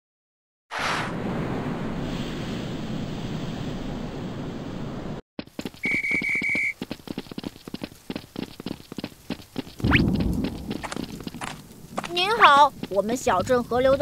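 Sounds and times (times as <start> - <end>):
running footsteps: 5.4 - 14.0
pea whistle trill: 5.8 - 6.8
steady rushing noise: 7.8 - 14.0.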